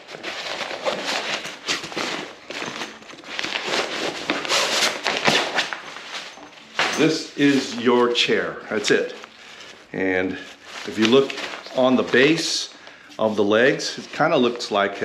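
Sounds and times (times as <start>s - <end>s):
nylon bag rustling and crinkling: 0.0s - 15.0s.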